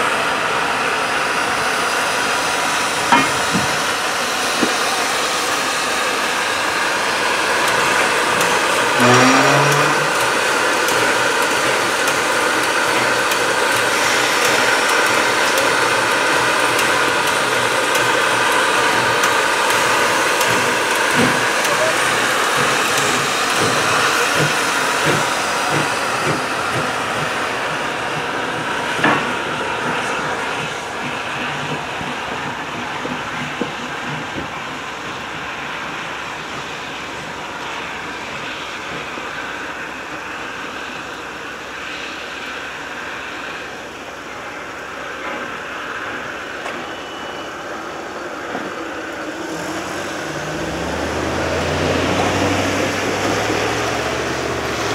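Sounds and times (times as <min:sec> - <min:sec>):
steam hissing: 0:00.0 - 0:54.9
train wheels clacking over rails: 0:00.0 - 0:54.9
sharp metal clank: 0:03.1 - 0:03.7.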